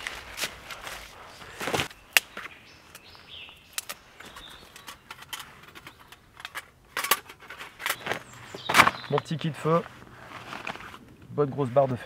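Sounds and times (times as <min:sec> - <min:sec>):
branches rustling on leaf litter: 0:00.0 - 0:04.9
branch snapping: 0:01.7 - 0:03.1, 0:03.7 - 0:04.0.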